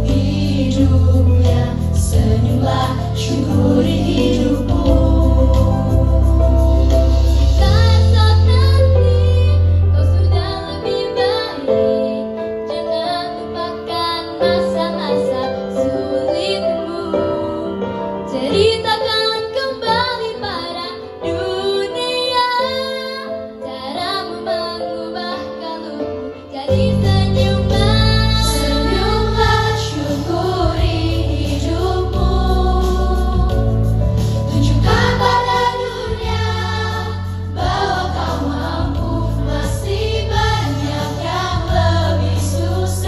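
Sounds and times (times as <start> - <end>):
choir singing pop song: 0.0 - 9.6, 13.2 - 43.0
heavy bass: 0.0 - 10.2, 27.1 - 43.0
musical accompaniment: 0.0 - 43.0.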